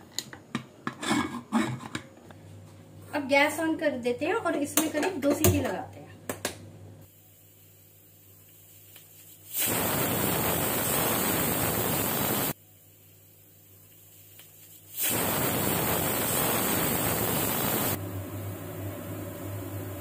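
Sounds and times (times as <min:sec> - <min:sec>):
pressure cooker whistling: 0:09.6 - 0:12.6, 0:15.1 - 0:18.0.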